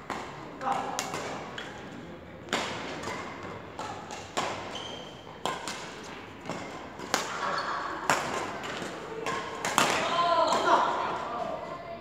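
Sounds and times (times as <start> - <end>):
badminton racket hitting shuttlecock: 2.5 - 10.8.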